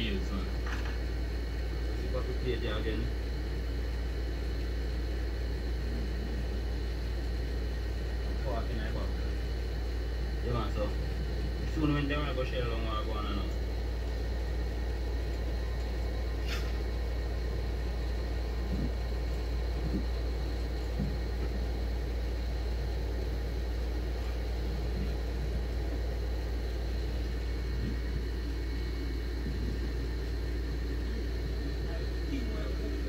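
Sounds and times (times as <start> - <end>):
low rumble: 22.8 - 33.0.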